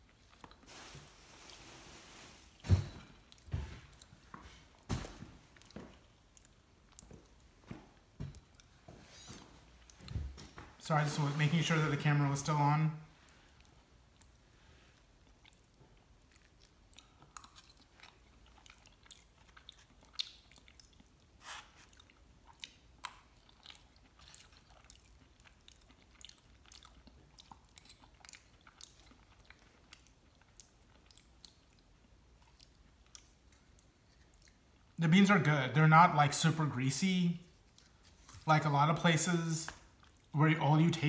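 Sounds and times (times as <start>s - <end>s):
chewing crunchy chips: 13.2s - 35.0s.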